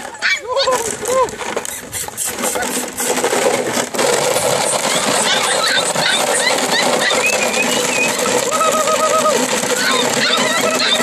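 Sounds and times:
plastic bottles clattering: 0.0 - 11.0
puppies squeaking: 1.6 - 2.9, 4.4 - 11.0.

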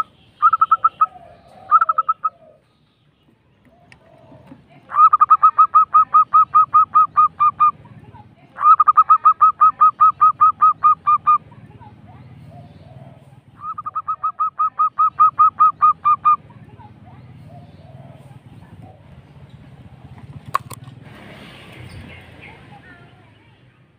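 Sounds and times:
dove cooing: 0.0 - 2.8, 3.6 - 20.4.

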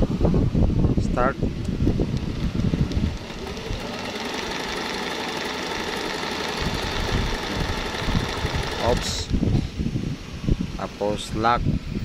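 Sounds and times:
sewing machine running: 2.0 - 9.3.

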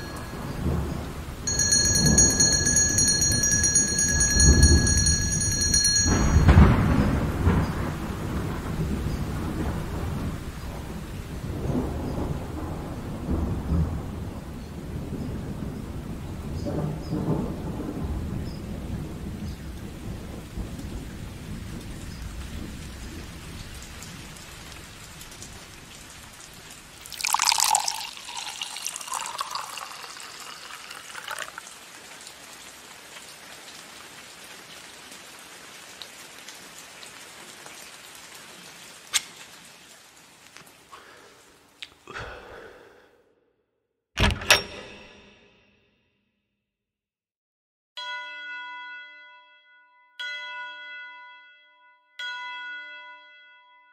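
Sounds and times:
thunder rumble: 0.0 - 2.4, 4.5 - 26.2
steady rain: 0.0 - 42.9.

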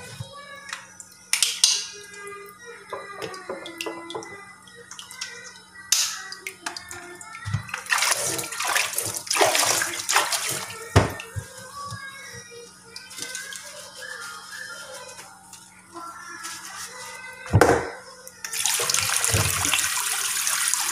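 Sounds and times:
hands splashing water in basin: 7.6 - 11.3.

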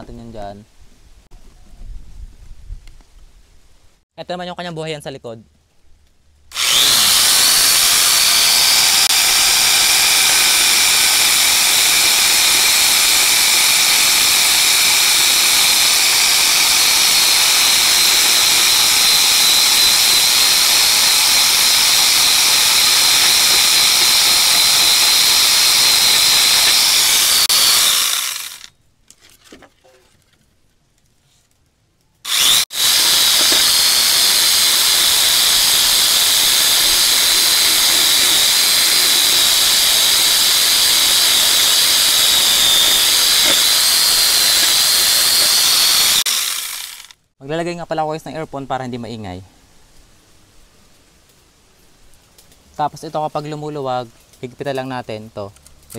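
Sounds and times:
angle grinder chainsaw whining: 6.5 - 28.7, 32.2 - 47.2.

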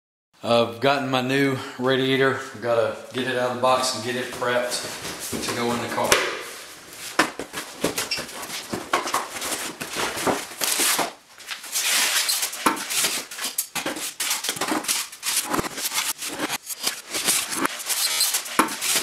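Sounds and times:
foam blocks rubbing: 4.0 - 19.0
cardboard box scraping and rustling: 6.9 - 19.0.

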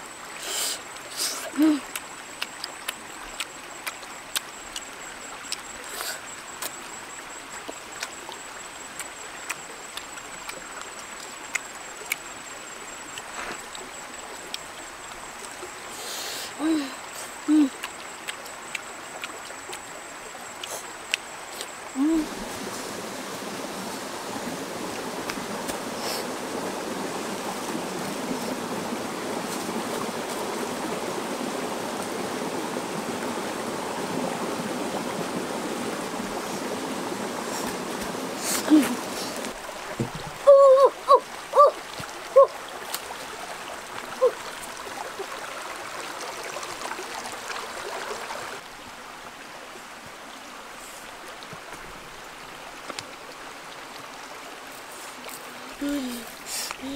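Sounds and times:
stream water running: 0.0 - 56.9.

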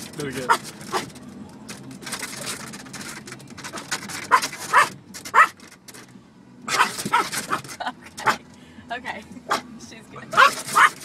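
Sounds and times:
small dog yapping: 4.3 - 5.6, 6.7 - 7.6, 10.3 - 11.0.

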